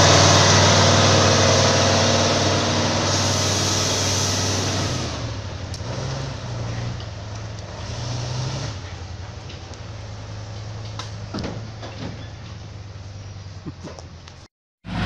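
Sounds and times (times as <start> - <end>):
truck engine pulling: 0.0 - 15.0
short squeaks: 11.8 - 12.6.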